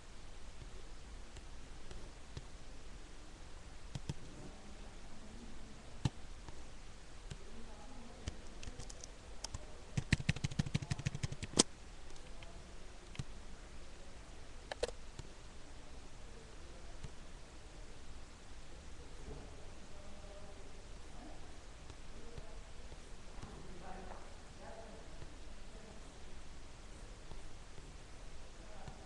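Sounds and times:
clicks: 14.7 - 15.3.

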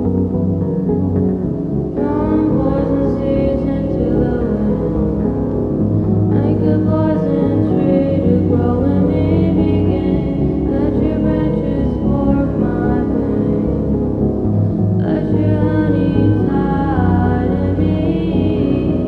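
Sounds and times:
ambient music with low bass: 0.0 - 19.0
choir-like voices: 6.3 - 13.9, 15.0 - 19.0.

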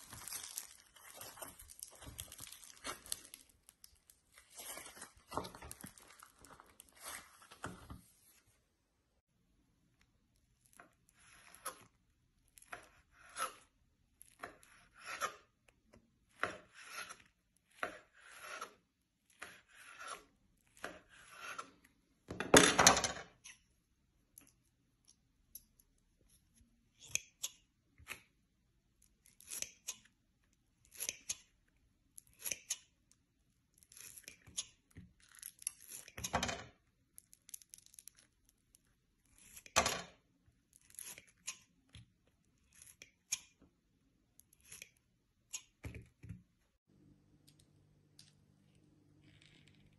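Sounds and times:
scissors snipping foam clay: 10.7 - 21.8, 24.3 - 28.4, 29.0 - 30.2, 30.8 - 33.1, 40.6 - 43.6, 44.3 - 46.3.

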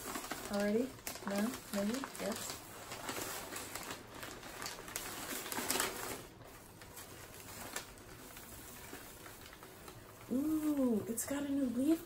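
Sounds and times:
paper rustling and crinkling: 0.0 - 12.0.

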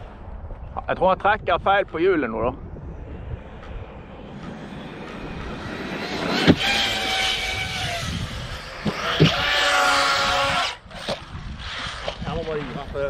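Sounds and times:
electric motor whining: 3.2 - 12.8.

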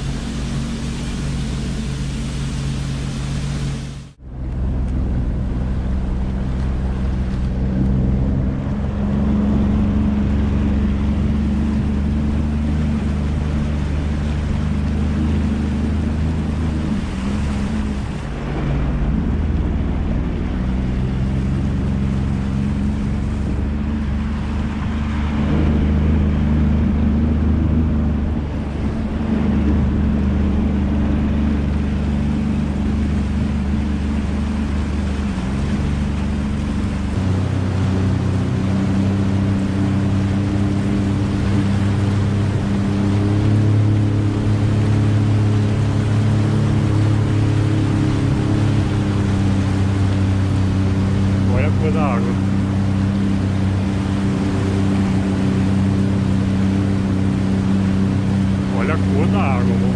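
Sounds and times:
jet ski engine running: 0.0 - 59.9
rushing water: 0.0 - 59.9
wind noise: 0.0 - 59.9.

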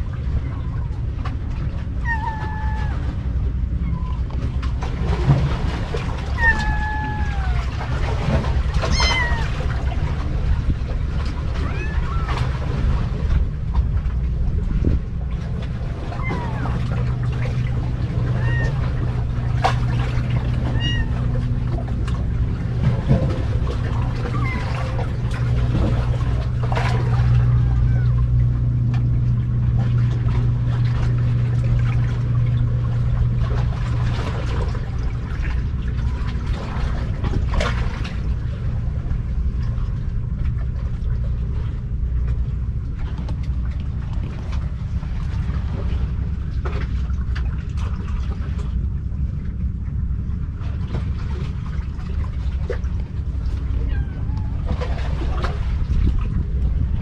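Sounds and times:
low humming drone: 0.0 - 57.0
faint kitten mews: 2.0 - 3.0, 6.4 - 7.7, 8.9 - 9.6.

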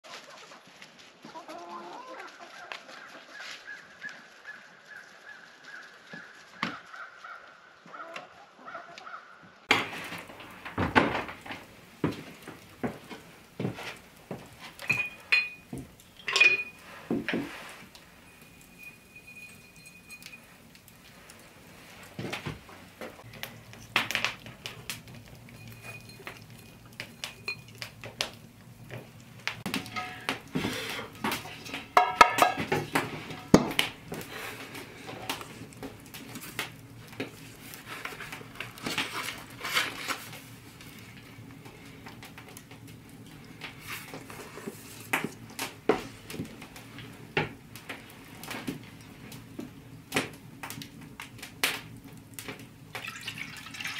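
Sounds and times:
dishes clinking on a table: 14.8 - 17.5, 29.7 - 30.7, 31.3 - 33.7.

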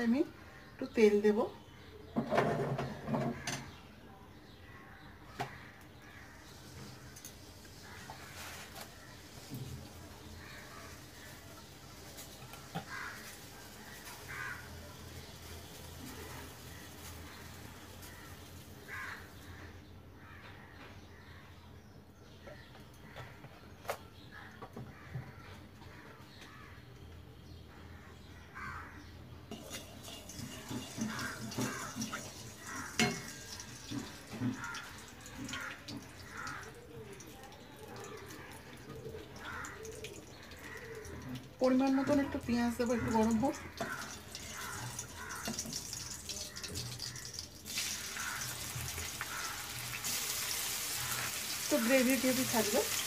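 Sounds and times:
oil sizzling and crackling: 6.4 - 19.4, 29.5 - 53.0
metal utensil scraping pan: 29.5 - 34.5.

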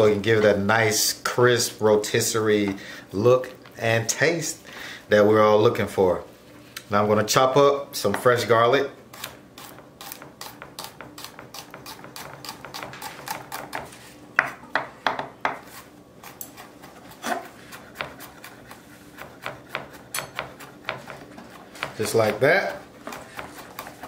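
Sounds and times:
knife chopping on wooden board: 9.2 - 24.0.

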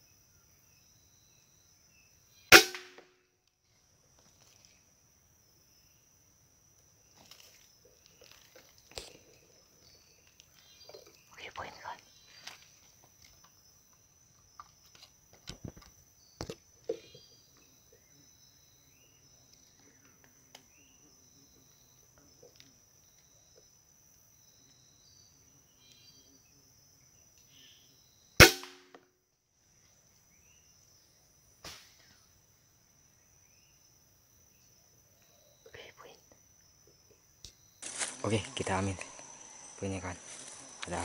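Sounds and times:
air rifle shot: 2.5 - 3.0, 28.4 - 28.9
high-pitched insect drone: 37.5 - 41.0.

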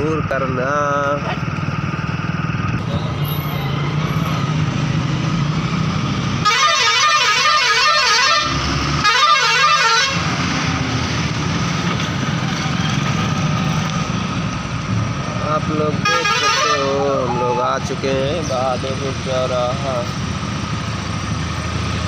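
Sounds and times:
motorcycle engine: 0.0 - 22.0
road traffic: 0.0 - 22.0
warbling vehicle horn: 6.4 - 10.2, 16.0 - 17.8.

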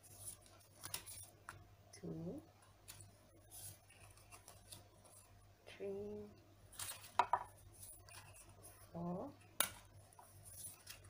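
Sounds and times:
postcards rustling and flicking: 0.0 - 1.7, 2.6 - 5.4, 6.7 - 11.0
faint low hum: 0.0 - 11.0.

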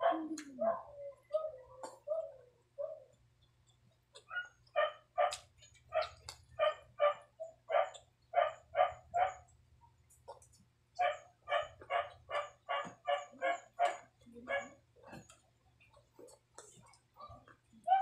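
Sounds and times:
dog barking: 0.0 - 3.1, 4.3 - 9.5, 11.0 - 14.8, 17.2 - 18.0.

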